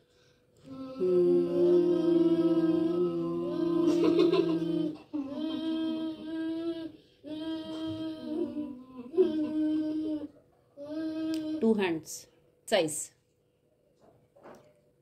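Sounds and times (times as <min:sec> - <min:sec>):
in-breath: 0:00.0 - 0:00.7
children humming: 0:00.6 - 0:11.7.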